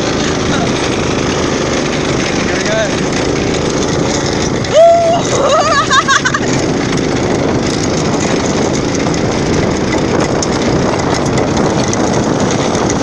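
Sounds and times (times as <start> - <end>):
go-kart engine running: 0.0 - 13.0
tyres rumbling on gravel: 0.0 - 13.0.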